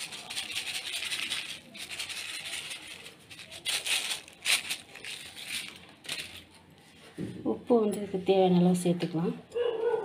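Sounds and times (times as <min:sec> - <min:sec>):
seeds rattling into steel bowl: 0:00.0 - 0:06.6.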